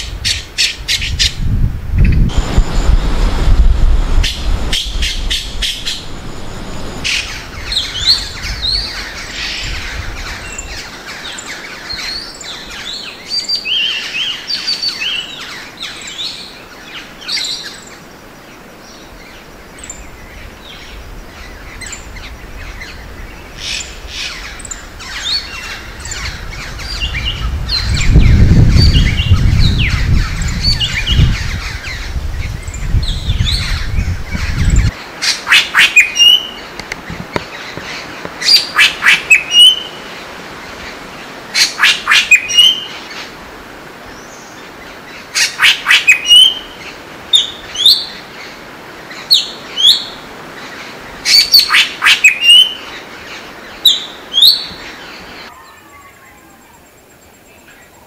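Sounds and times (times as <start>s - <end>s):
birds chirping and whistling: 4.2s - 16.5s, 19.8s - 36.7s, 37.4s - 40.0s, 41.6s - 43.0s, 45.4s - 48.2s, 51.3s - 53.1s, 53.7s - 56.4s.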